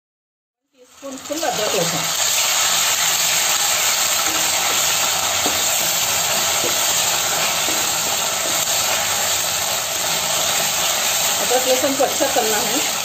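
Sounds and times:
onions sizzling in hot oil: 0:00.7 - 0:13.0
wooden spatula scraping pan: 0:03.8 - 0:11.8.

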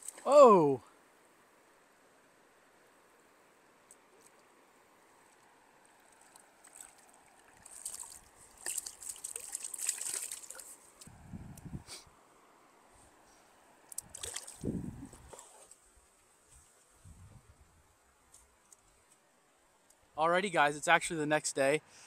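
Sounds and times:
stream water splashing: 0:00.0 - 0:00.6, 0:03.9 - 0:11.1, 0:13.9 - 0:15.8.

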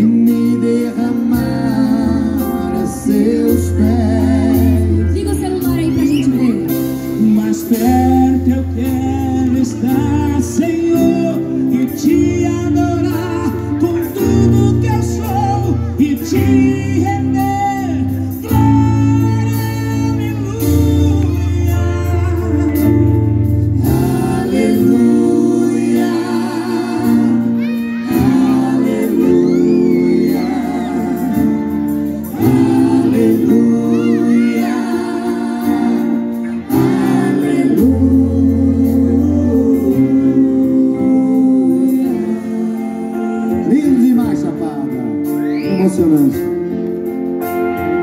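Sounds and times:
singers singing with vibrato: 0:00.0 - 0:06.6, 0:22.1 - 0:43.7
bass guitar: 0:00.0 - 0:48.0
drums: 0:00.0 - 0:48.0
electric guitar: 0:00.0 - 0:48.0.

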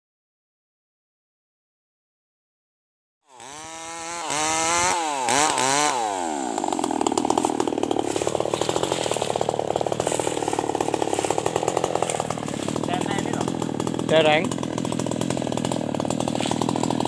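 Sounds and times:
chainsaw revving: 0:03.3 - 0:17.0.

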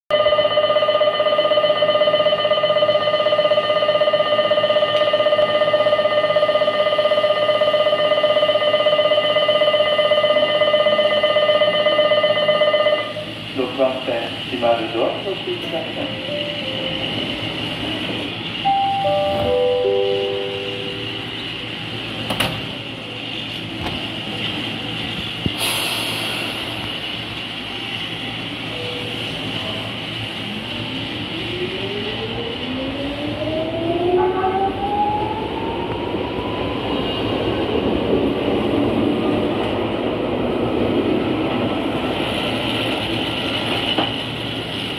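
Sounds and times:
steady high-pitched tone: 0:00.1 - 0:13.4, 0:15.8 - 0:22.2
electric train humming: 0:00.1 - 0:44.9
electric bell ringing: 0:18.6 - 0:21.4
descending electronic chime: 0:18.6 - 0:21.8
air hiss: 0:24.7 - 0:27.9
rising motor whine: 0:31.2 - 0:37.0.

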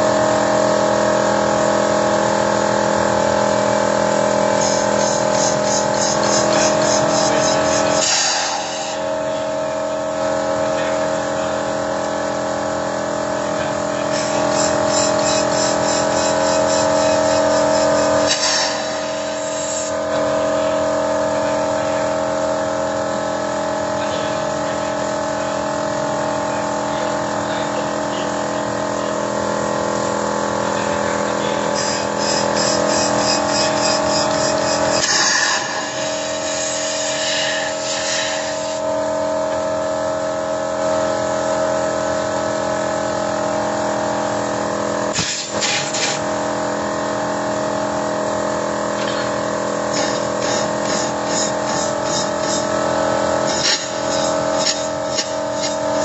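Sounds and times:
car engine running: 0:48.3 - 0:56.0.

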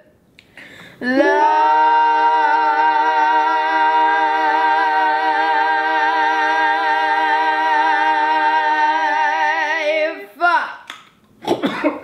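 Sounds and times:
group singing long chord: 0:01.0 - 0:10.6.

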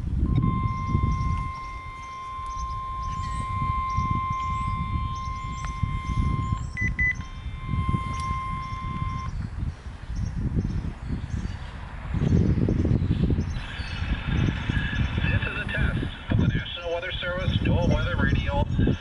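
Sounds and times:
birds chirping: 0:00.0 - 0:19.0
wind rumbling on microphone: 0:00.0 - 0:19.0
long steady radio tone: 0:00.2 - 0:09.3, 0:13.6 - 0:19.0
short high beeps: 0:00.3 - 0:09.3.

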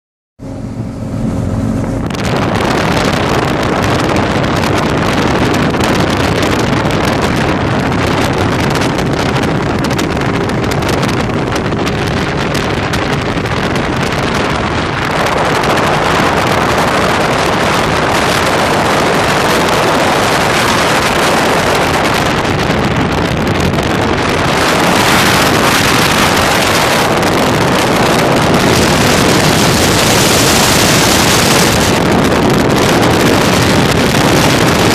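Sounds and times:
powerboat engine: 0:00.4 - 0:34.9
wind rushing over microphone: 0:00.4 - 0:34.9.

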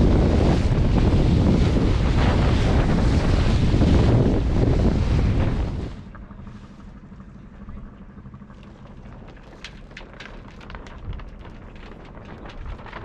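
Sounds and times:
wind rumble: 0:00.0 - 0:13.0
rigging ticks and crackles: 0:07.0 - 0:13.0.

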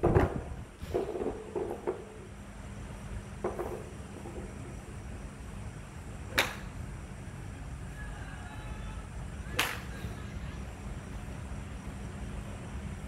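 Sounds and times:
golf clubs striking balls: 0:00.0 - 0:02.3, 0:03.4 - 0:04.6, 0:06.3 - 0:06.8, 0:09.6 - 0:09.9
steady low hum: 0:00.0 - 0:13.0.

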